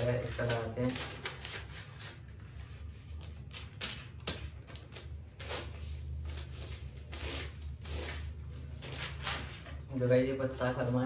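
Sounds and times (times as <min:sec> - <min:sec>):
steady low hum: 0:00.0 - 0:11.0
paper rustling and sliding: 0:00.3 - 0:09.8.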